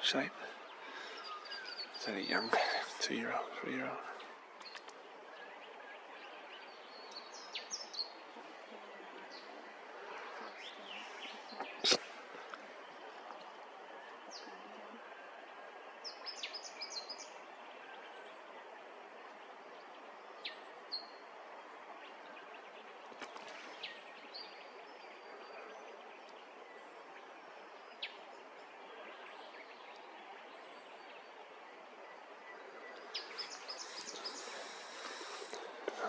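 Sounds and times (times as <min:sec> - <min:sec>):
bird chirps: 0:00.0 - 0:13.0, 0:32.4 - 0:36.0
outdoor background hiss: 0:00.0 - 0:36.0.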